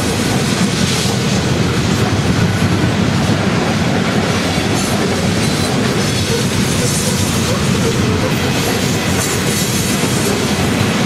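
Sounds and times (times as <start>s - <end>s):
freight train wheels rumbling: 0.0s - 11.0s.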